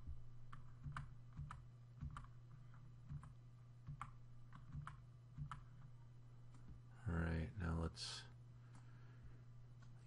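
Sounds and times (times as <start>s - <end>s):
faint low hum: 0.0s - 10.0s
computer mouse and keyboard clicks: 0.5s - 6.8s.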